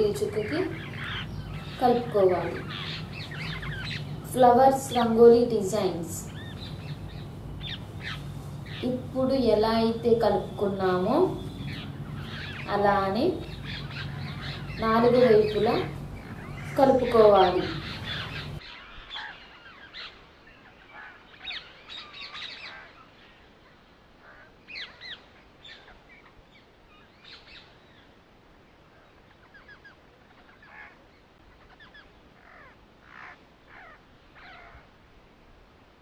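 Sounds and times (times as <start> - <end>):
faint steady hiss: 0.0 - 18.6
birds calling and chirping: 0.0 - 28.2, 28.8 - 34.9.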